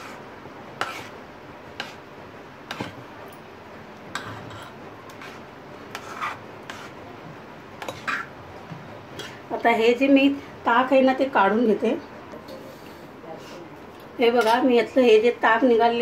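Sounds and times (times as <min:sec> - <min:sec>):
metal spoon scraping metal bowl: 0:04.2 - 0:07.0.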